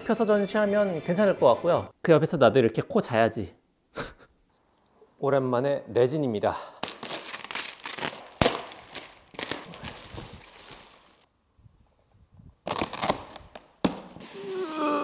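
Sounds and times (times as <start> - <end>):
plastic wrap tearing and crinkling: 6.8 - 11.3, 12.6 - 14.7.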